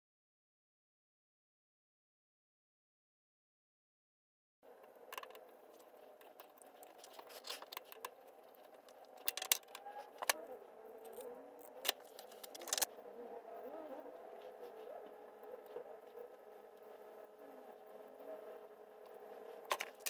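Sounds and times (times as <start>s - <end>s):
light clicks and scrapes: 4.8s - 10.4s.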